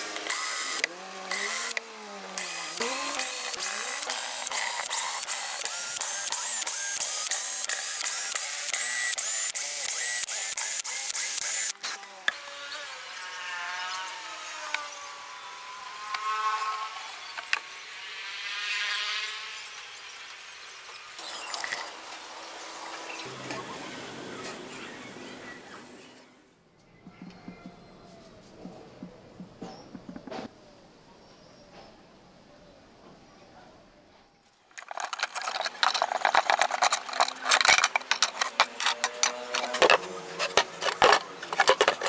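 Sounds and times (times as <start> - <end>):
cordless drill whining: 0.0 - 11.8.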